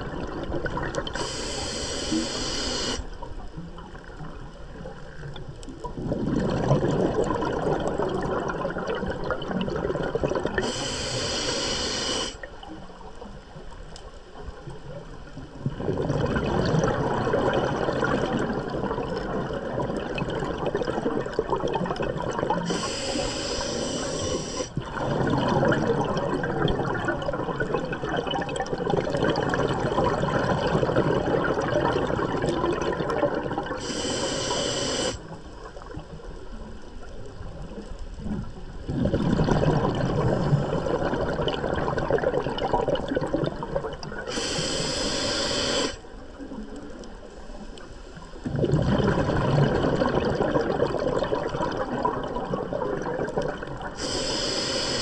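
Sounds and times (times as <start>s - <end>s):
exhaled bubbles rushing: 0.0s - 1.4s, 3.8s - 10.8s, 15.4s - 33.8s, 37.2s - 44.3s, 48.4s - 54.1s
hissing regulator inhalation: 1.1s - 3.1s, 10.6s - 12.5s, 22.6s - 24.8s, 33.8s - 35.2s, 44.3s - 46.0s, 54.0s - 55.0s.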